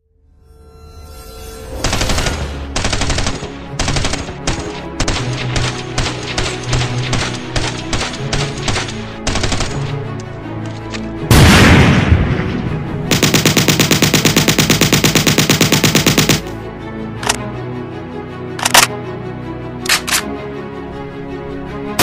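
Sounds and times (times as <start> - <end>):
music: 0.0 - 22.0
gunshots: 1.8 - 9.9, 13.1 - 16.5
loud blast: 11.3 - 13.0
machine-gun burst: 13.1 - 16.5.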